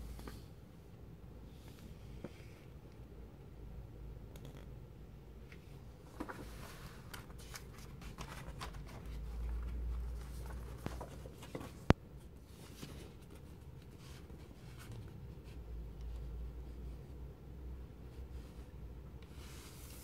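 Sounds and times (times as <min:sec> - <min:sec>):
magazine pages rustling: 0:06.0 - 0:15.1.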